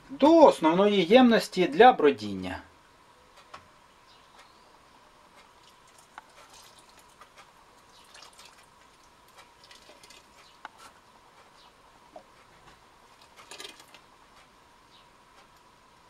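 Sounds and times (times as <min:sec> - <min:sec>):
liquid trickling and dripping: 0:05.4 - 0:10.8
small splashes: 0:05.6 - 0:07.2, 0:07.9 - 0:10.3.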